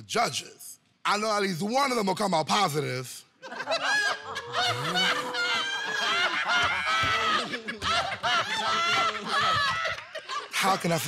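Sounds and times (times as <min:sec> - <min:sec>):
people laughing and whooping: 0:03.4 - 0:11.0.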